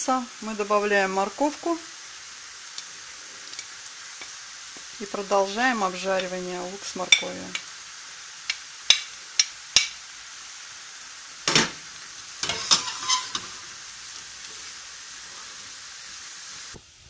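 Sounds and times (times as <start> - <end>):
vegetables sizzling in oil: 0.0 - 17.0
spatula scraping pan: 12.4 - 13.8.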